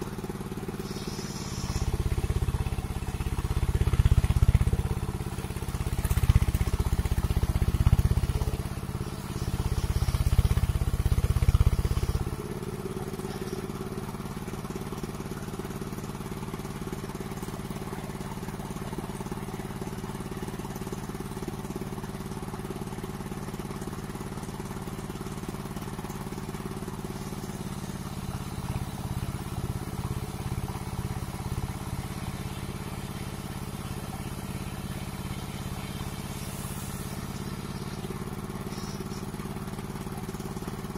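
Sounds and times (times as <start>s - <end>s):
circular sawmill cutting timber: 0.0s - 15.3s, 26.4s - 40.9s.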